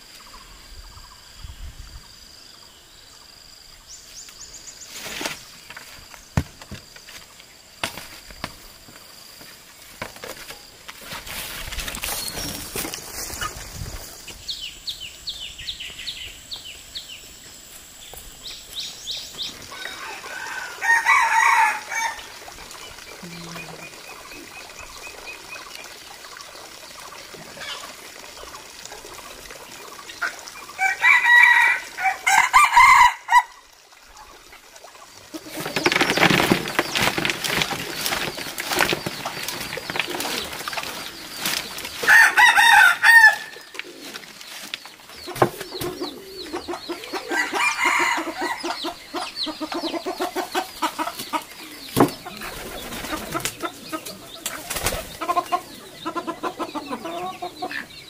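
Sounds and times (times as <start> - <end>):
rustling noise: 9.4 - 14.4, 35.4 - 42.3
roosters crowing: 19.6 - 22.4, 30.8 - 33.6, 42.0 - 44.0, 47.0 - 49.0
hens clucking: 45.2 - 58.0.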